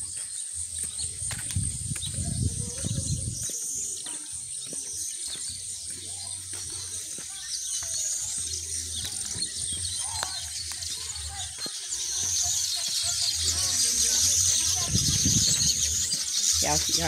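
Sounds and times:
birds chattering and chirping: 0:00.0 - 0:17.0.

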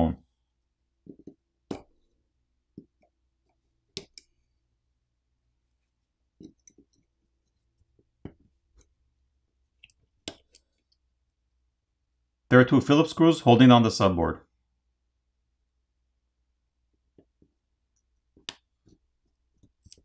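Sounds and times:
metal tools clicking on phone: 0:03.9 - 0:04.4.

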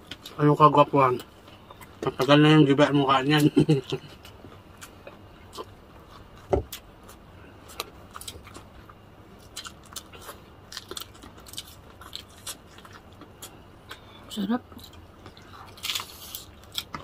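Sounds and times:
crunchy bites of fried food: 0:04.7 - 0:14.0, 0:14.8 - 0:17.0.

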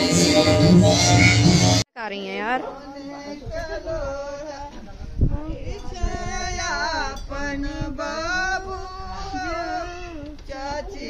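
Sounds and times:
women singing together: 0:02.7 - 0:11.0.

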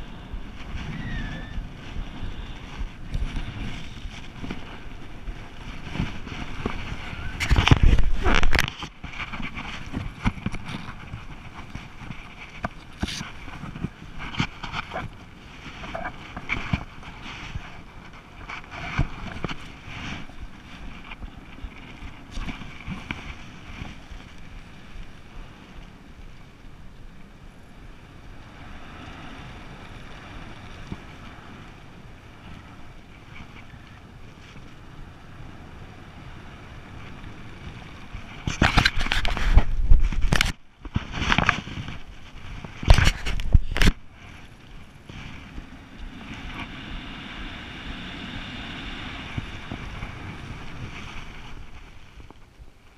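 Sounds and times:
wind rushing over microphone: 0:00.0 - 0:26.2, 0:27.6 - 0:52.9
gear knocks and rustles: 0:01.8 - 0:25.2, 0:37.0 - 0:45.7.

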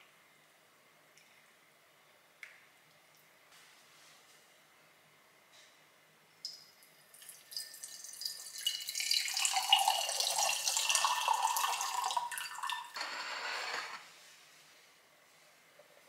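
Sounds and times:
tea pouring into a glass: 0:07.1 - 0:13.0.

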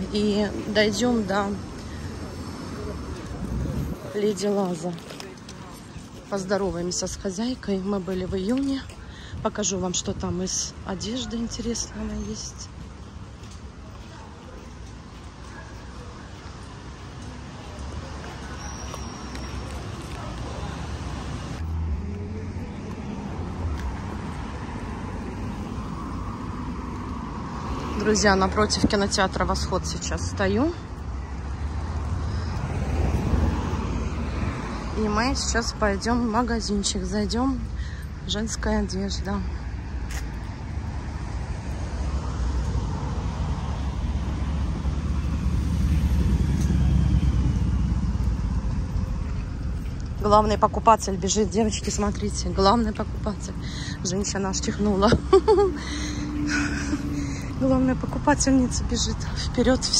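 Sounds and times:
traffic rumble: 0:00.0 - 0:59.9
low outdoor rumble: 0:40.4 - 0:59.9.

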